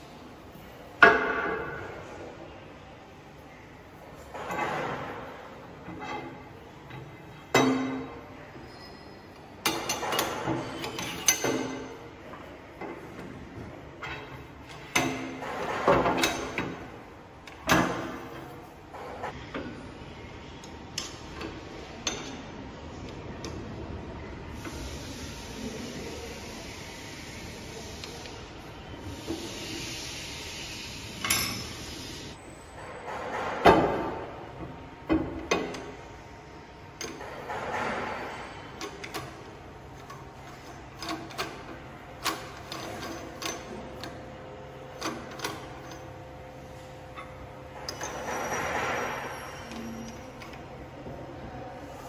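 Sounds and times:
metal bar clinking and clanking: 5.8 - 8.1, 9.6 - 11.9, 47.2 - 50.6
steel parts clinking and knocking: 47.2 - 50.6.

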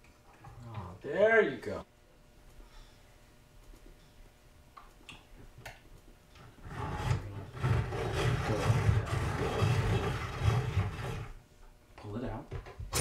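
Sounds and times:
pencil sharpener grinding: 6.6 - 11.4.

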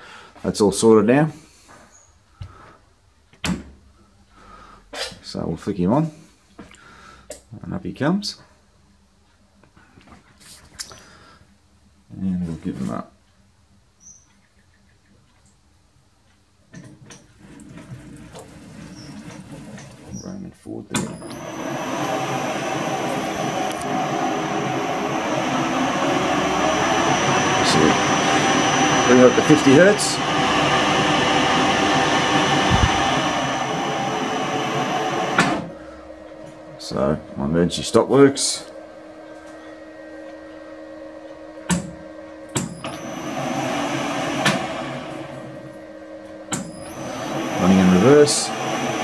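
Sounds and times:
lathe motor running: 21.0 - 41.4, 42.5 - 49.0
high whine: 21.1 - 40.8, 42.7 - 49.0.

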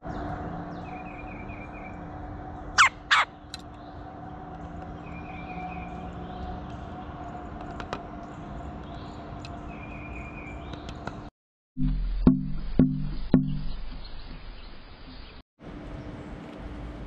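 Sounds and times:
woodpecker harsh call notes: 2.8 - 3.4.

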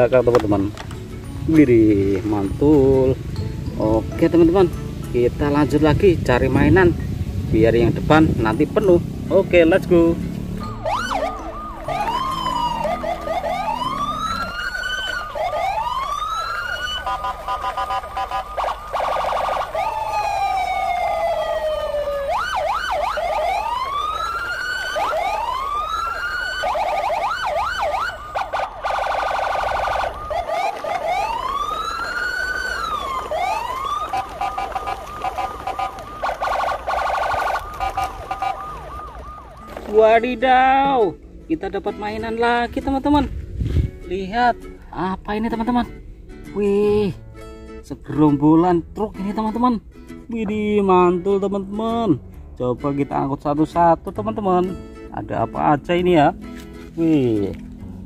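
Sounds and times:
rapid warbling bursts: 7.6 - 39.3
steady high tone: 8.7 - 22.3
electronic toy siren wails: 10.6 - 40.2.

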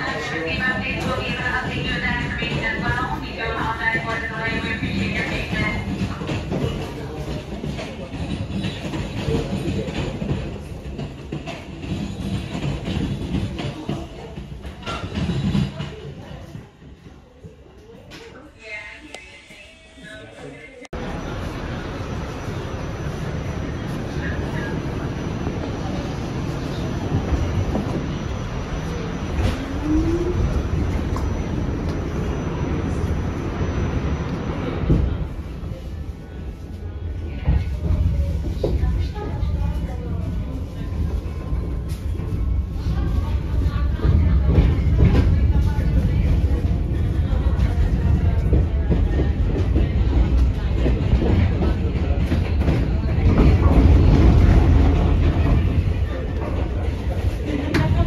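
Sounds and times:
subway car rumble: 0.0 - 58.0.

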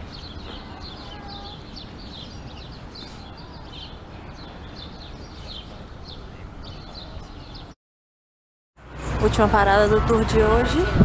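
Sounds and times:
small birds chirping: 0.0 - 7.8.

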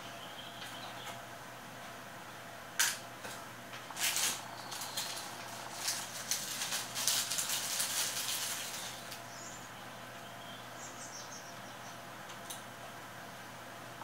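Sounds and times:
plastic bag crinkling: 3.9 - 9.2.

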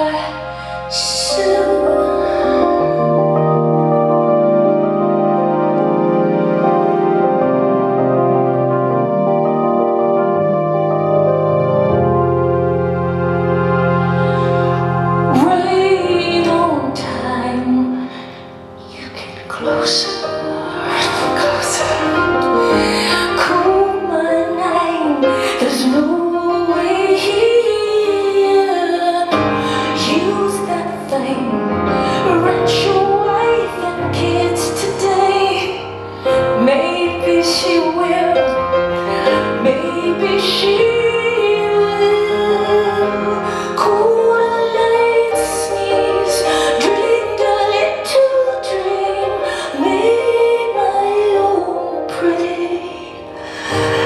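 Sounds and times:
woman singing: 0.0 - 3.7, 15.3 - 54.0
grand piano: 0.0 - 54.0.

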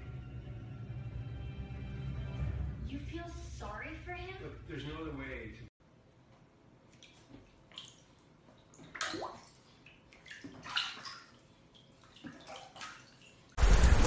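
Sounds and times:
water splashing in a bathtub: 6.8 - 13.6.

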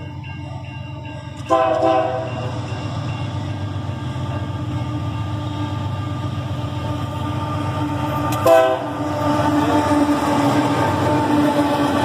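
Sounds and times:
diesel locomotive engine rumble: 0.0 - 12.0
rolling rail noise: 0.0 - 12.0.

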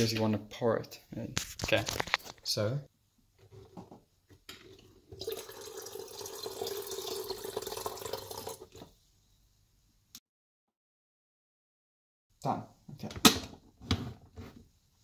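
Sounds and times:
water pouring into kettle: 4.6 - 8.9.

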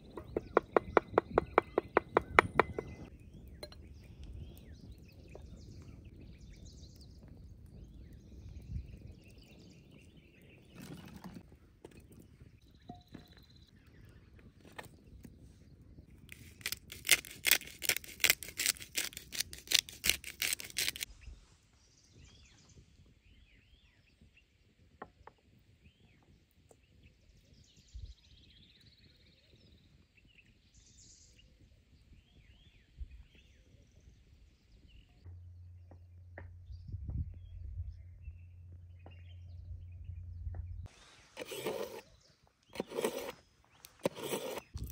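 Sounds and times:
small birds chirping: 0.0 - 44.9
sharp scratchy strokes: 16.3 - 21.1, 40.9 - 42.1, 42.8 - 44.8
low steady hum: 35.2 - 40.9.

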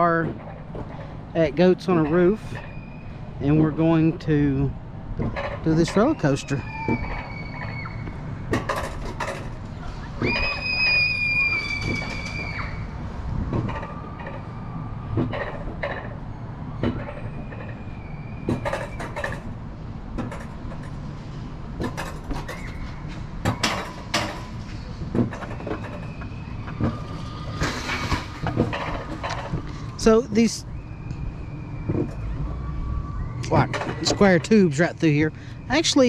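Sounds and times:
clacks and knocks on rails: 0.0 - 2.8, 8.5 - 10.7, 13.4 - 14.5, 15.1 - 16.2, 18.5 - 21.1, 21.8 - 30.6, 33.4 - 35.0
sled rumbling along rails: 0.0 - 36.0.

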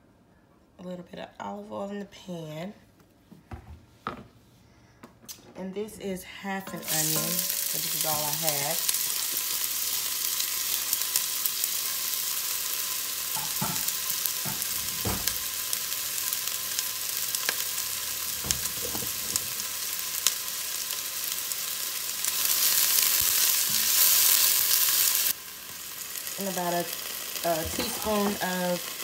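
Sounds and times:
onion sizzling in oil: 6.6 - 29.0.

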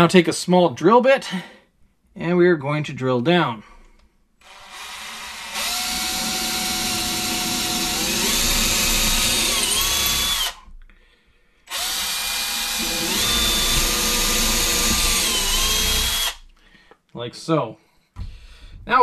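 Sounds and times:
power drill whining: 4.4 - 10.7, 11.7 - 16.5.

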